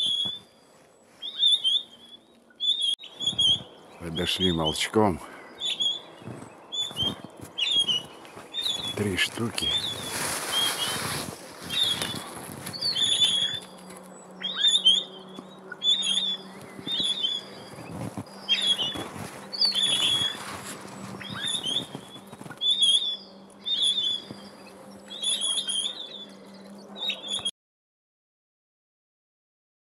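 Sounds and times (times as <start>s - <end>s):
wings flapping: 6.2s - 14.0s, 16.7s - 23.0s.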